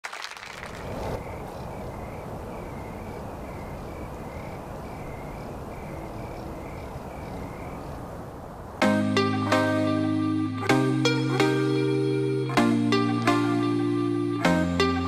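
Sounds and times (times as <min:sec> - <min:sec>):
steady background hiss: 0:00.2 - 0:09.0.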